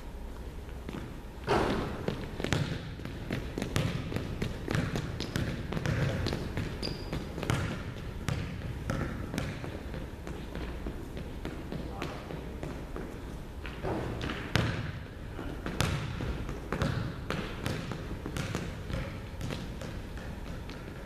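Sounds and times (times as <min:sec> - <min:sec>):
sneaker squeak: 0:05.2 - 0:07.9.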